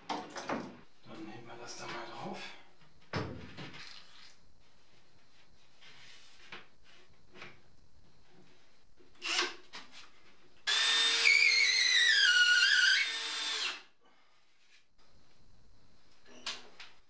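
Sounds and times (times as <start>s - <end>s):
cordless drill whining: 9.2s - 9.6s, 10.7s - 13.9s.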